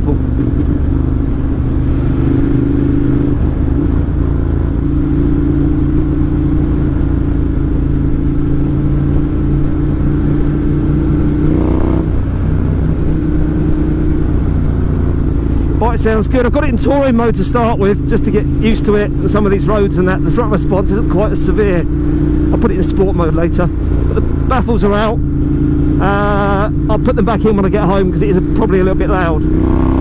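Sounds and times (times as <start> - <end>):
loud motorcycle engine: 0.0 - 30.0.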